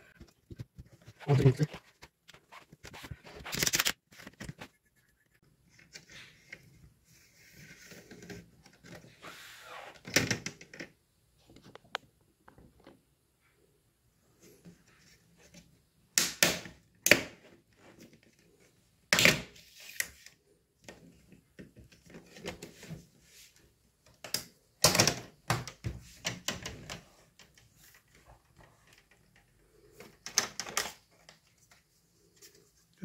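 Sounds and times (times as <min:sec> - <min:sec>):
plastic handling noise: 0:00.0 - 0:04.7.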